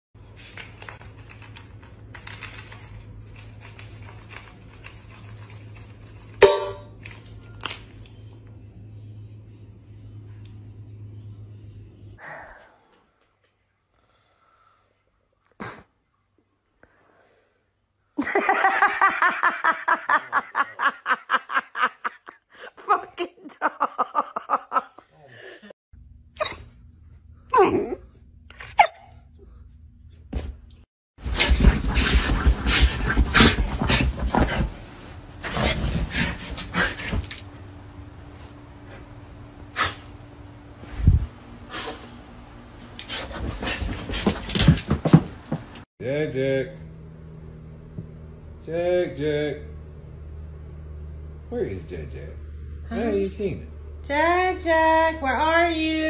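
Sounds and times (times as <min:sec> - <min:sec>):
low steady hum: 0:00.3 - 0:13.2
person laughing hard: 0:18.2 - 0:25.6.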